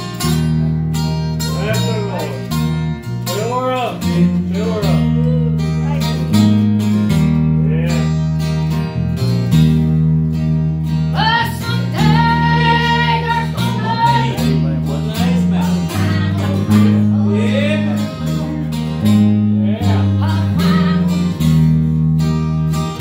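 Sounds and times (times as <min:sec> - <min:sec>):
bass guitar low notes: 0:00.0 - 0:23.0
strummed acoustic guitars: 0:00.0 - 0:23.0
people singing: 0:11.2 - 0:14.6, 0:15.5 - 0:18.8, 0:19.8 - 0:21.4.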